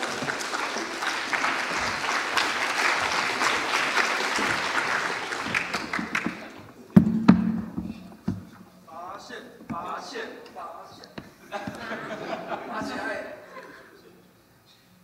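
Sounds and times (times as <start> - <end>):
audience applauding: 0.0 - 6.7
laptop knocking on lectern: 7.0 - 8.5.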